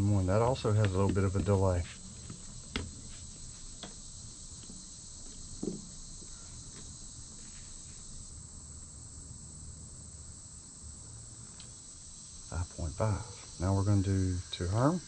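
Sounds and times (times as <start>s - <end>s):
high-pitched background hiss: 0.0s - 15.0s
soft knock: 5.6s - 5.9s.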